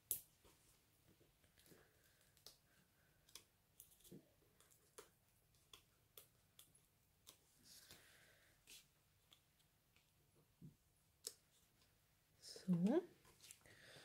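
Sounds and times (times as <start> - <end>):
soft rustle: 12.6 - 13.7.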